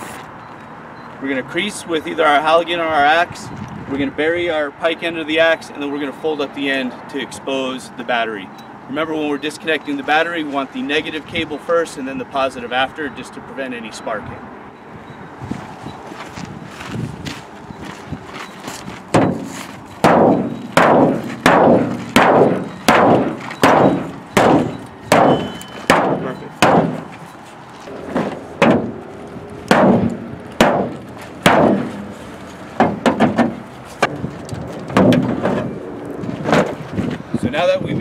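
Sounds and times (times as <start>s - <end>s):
axe striking sheet metal: 19.2s - 27.1s, 29.7s - 32.0s.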